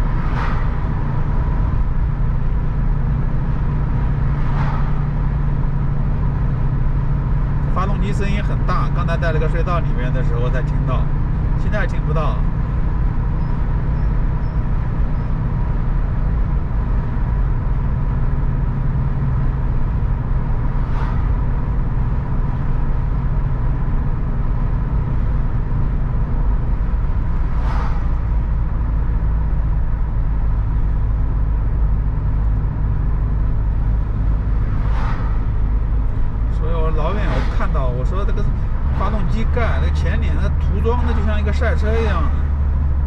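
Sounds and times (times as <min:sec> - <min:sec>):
road and tyre rumble in car cabin: 0:00.0 - 0:43.0
brief swishes: 0:34.7 - 0:35.5.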